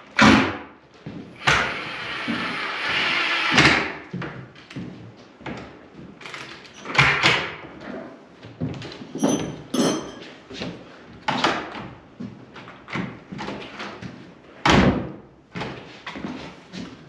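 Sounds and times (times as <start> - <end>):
high-pitched ring: 9.2 - 10.3.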